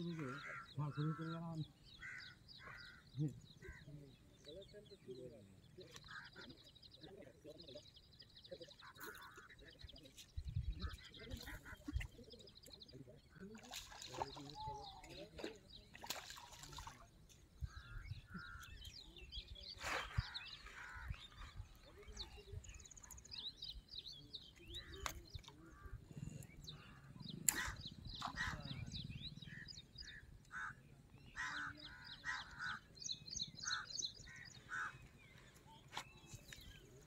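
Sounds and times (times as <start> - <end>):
birds chirping: 0.0 - 37.0
crows cawing: 2.0 - 3.1, 30.5 - 30.8, 31.4 - 32.9, 33.6 - 35.0.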